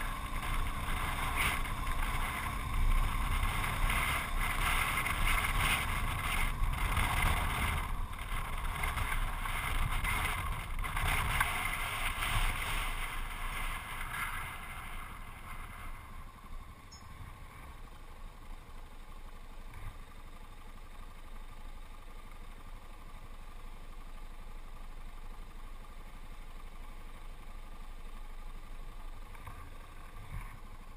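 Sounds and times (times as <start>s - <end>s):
wind rushing over microphone: 0.0s - 16.3s
motorcycle engine running: 0.0s - 30.9s.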